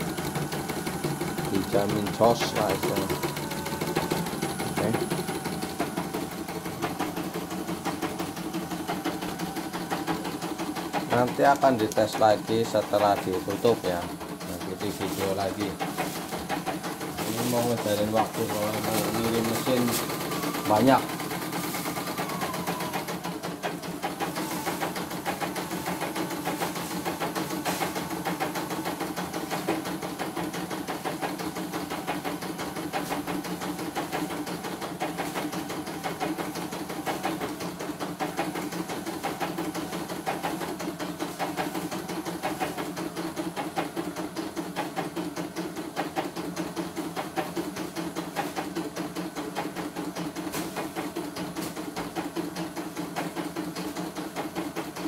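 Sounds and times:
motor hum: 0:00.0 - 0:32.2.

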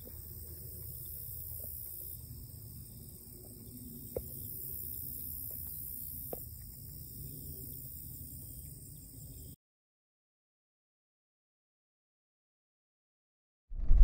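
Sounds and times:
constant hiss: 0:00.0 - 0:09.5.

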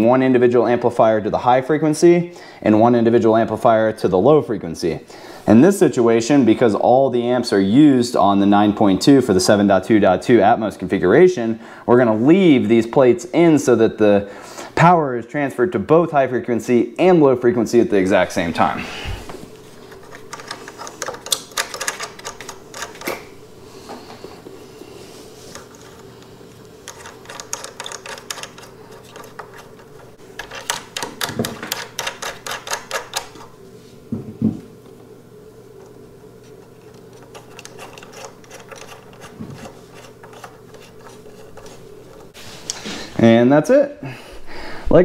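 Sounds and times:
steady low hum: 0:00.0 - 0:45.0
rapid clicking and rattling: 0:26.8 - 0:29.7, 0:30.4 - 0:33.4.

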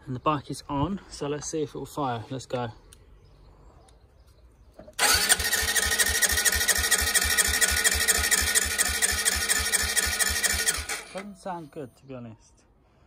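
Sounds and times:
electric starter cranking engine: 0:05.0 - 0:11.6.

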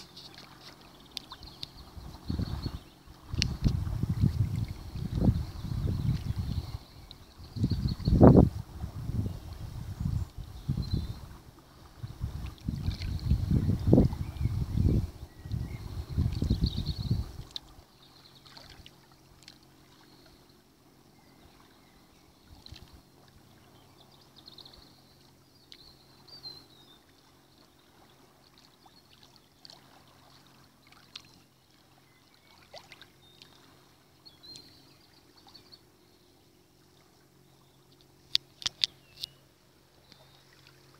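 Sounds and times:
waves lapping against rocks: 0:00.0 - 0:07.2
wind gust on microphone: 0:01.9 - 0:06.8, 0:07.4 - 0:17.5.

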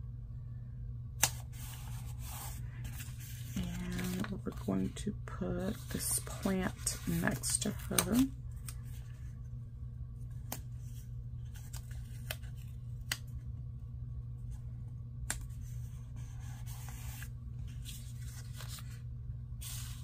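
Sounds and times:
low hum: 0:00.0 - 0:20.0
paper rustling: 0:01.4 - 0:09.3, 0:15.3 - 0:19.0, 0:19.6 - 0:20.0.

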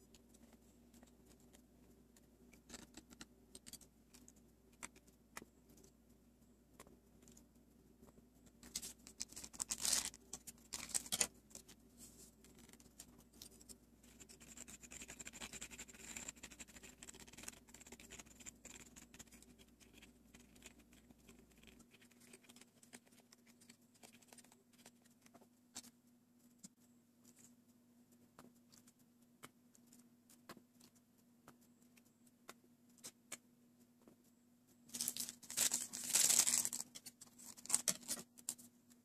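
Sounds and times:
plastic tray crackling: 0:34.9 - 0:38.6.

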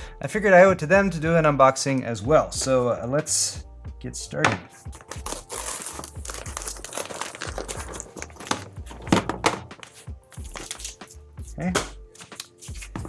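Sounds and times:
paper envelope rustling: 0:04.8 - 0:09.2, 0:09.8 - 0:11.2
paper crackles: 0:04.9 - 0:08.7.

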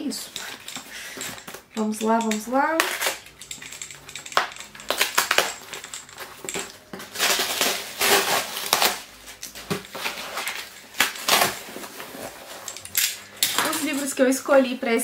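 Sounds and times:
cardboard box being torn open: 0:07.1 - 0:09.0.

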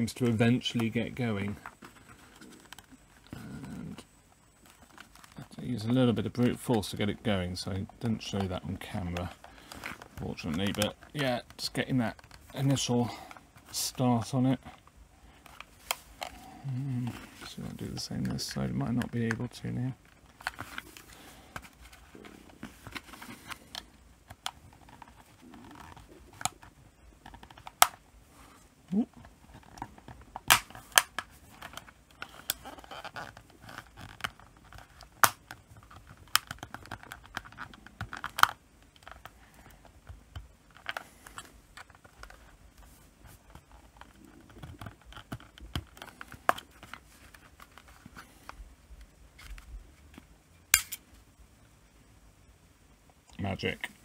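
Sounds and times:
plastic case clicking open: 0:29.8 - 0:32.7, 0:34.1 - 0:42.4.

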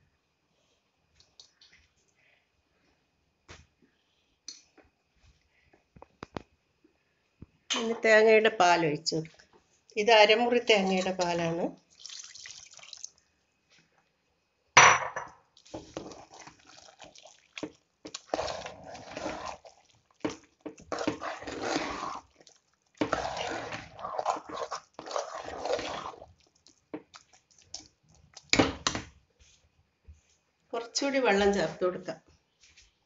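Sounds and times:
ladle scraping and sloshing rice: 0:15.6 - 0:28.5.

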